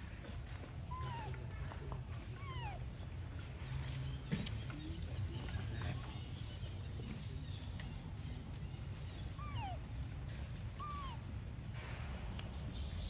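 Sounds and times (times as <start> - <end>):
macaque squeaky calls: 9.1 - 9.8, 10.8 - 11.2.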